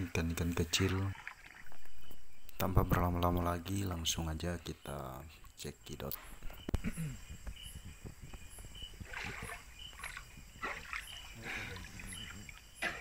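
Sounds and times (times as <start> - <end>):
night insects chirping: 0.0 - 13.0
water splashing in a river: 0.6 - 2.1, 9.0 - 13.0.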